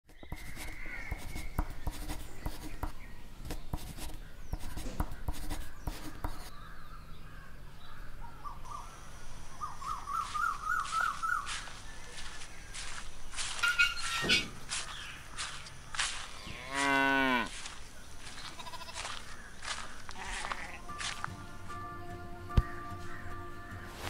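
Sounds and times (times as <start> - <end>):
bird chirping: 0.1 - 24.0
pen scratching on paper: 0.2 - 2.9, 3.5 - 6.5.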